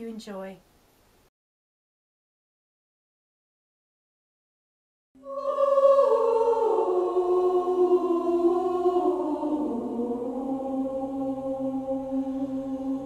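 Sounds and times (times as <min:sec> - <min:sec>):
low sustained tone: 0:05.2 - 0:13.0
voices chanting held tones: 0:05.2 - 0:13.0.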